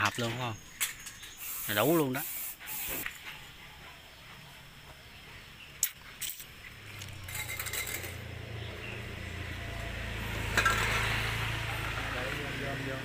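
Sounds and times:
metal sheet clinking and rattling: 7.2s - 8.3s.

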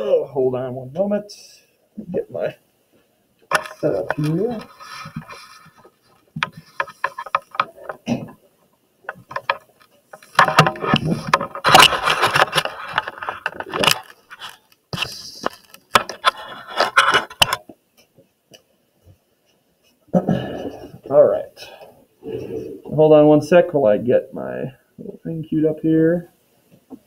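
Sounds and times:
equipment clattering and scraping: 9.1s - 14.6s.

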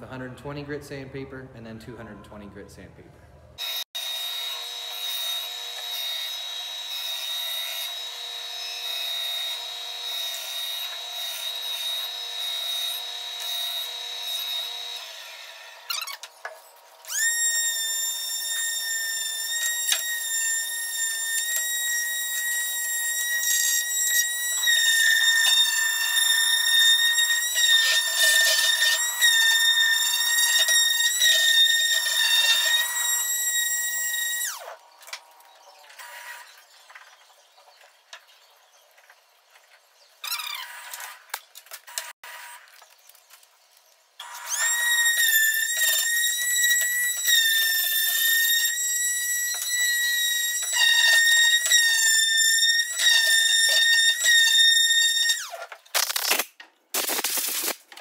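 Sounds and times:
palm sander whining: 3.6s - 37.1s.

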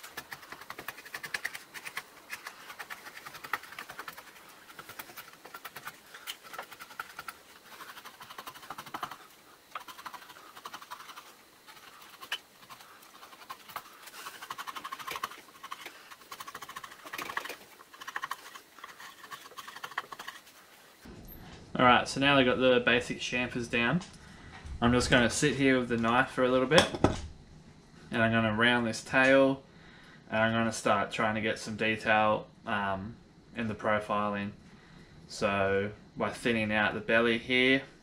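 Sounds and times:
chisel shaving wood: 0.0s - 20.5s.

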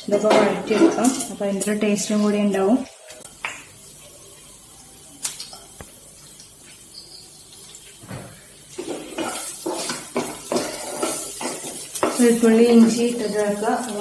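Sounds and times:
garlic sizzling in oil: 0.0s - 14.0s
spatula scraping pan: 8.7s - 14.0s.

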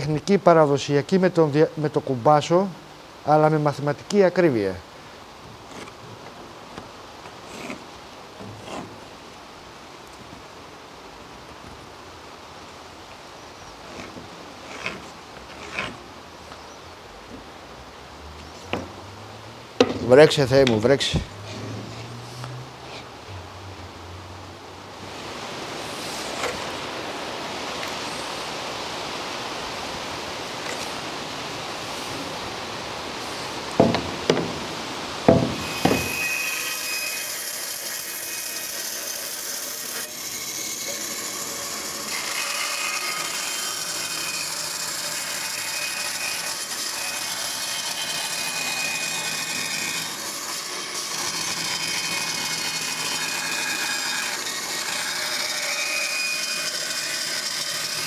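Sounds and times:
band saw cutting wood: 7.3s - 9.2s, 13.8s - 16.1s, 25.7s - 27.0s, 35.2s - 58.0s
sharp knocks: 33.8s - 34.6s, 35.3s - 36.2s.

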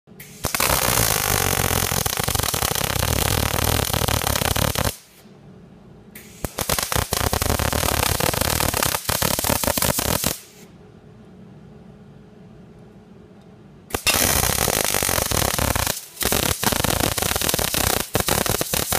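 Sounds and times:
welding arc crackling and sizzling: 0.3s - 5.1s, 6.3s - 10.4s, 13.9s - 18.9s
low steady hum: 5.1s - 6.4s, 10.4s - 14.2s.

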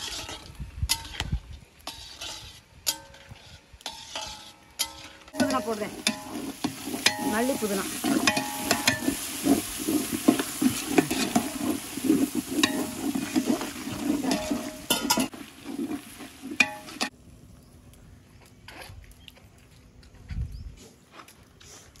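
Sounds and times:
ladle scraping metal pot: 0.0s - 17.1s
gravy sizzling: 1.8s - 17.2s
ladle clinking against pot: 8.0s - 9.2s, 10.3s - 15.3s.

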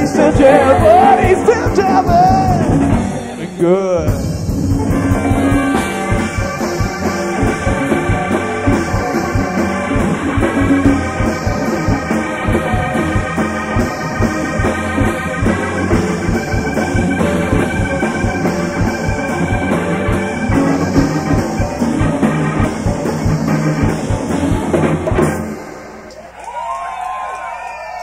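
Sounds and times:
sustained keyboard chords: 0.0s - 26.2s
drum kit beat: 0.0s - 26.3s
bass guitar: 0.0s - 27.2s
guitar: 0.0s - 27.7s.

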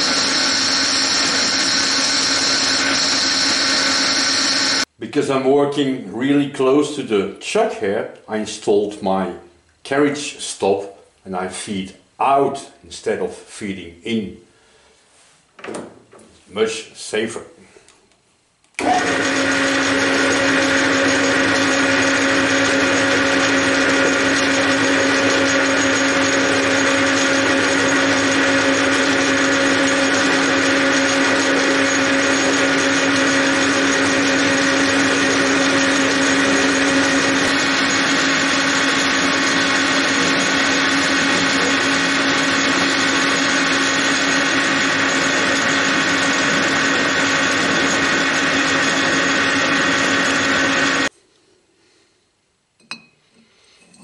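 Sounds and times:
gear whine: 0.0s - 4.9s
metal lathe running: 0.0s - 4.9s, 18.8s - 51.1s.

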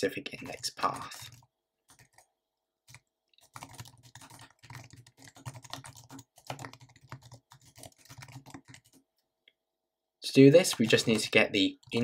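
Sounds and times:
fast typing on keyboard: 0.4s - 2.3s, 2.9s - 9.1s, 10.6s - 12.0s.

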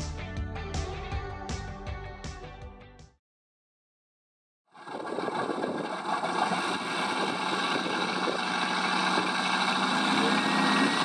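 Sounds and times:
simulated radial engine idling: 4.8s - 11.0s.

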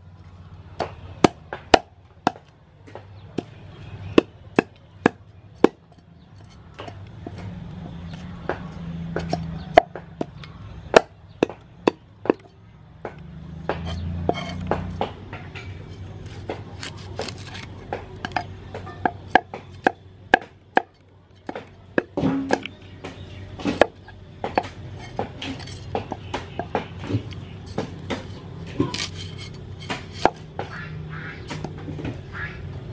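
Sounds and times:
knife scraping fish scales: 15.9s - 17.7s, 25.0s - 25.9s, 27.3s - 30.4s.

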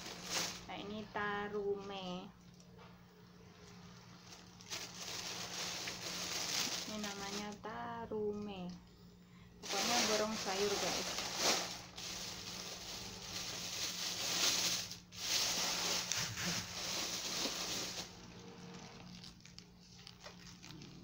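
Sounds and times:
plastic bag rustling: 0.0s - 1.2s, 3.6s - 7.7s, 9.6s - 21.0s
faint low hum: 0.0s - 21.0s.

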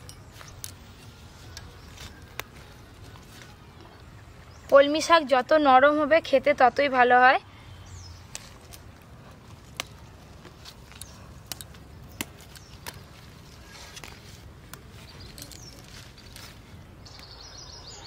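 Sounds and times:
plant shoots snapping: 1.6s - 3.2s, 8.2s - 16.6s
bird chirping: 7.5s - 8.8s, 14.8s - 18.0s.

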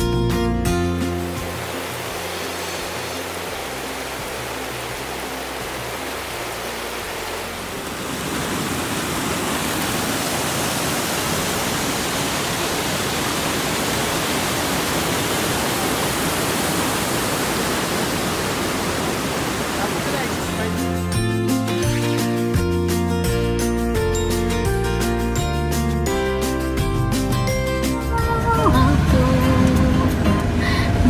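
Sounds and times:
stream rushing over boulders: 0.8s - 22.5s.

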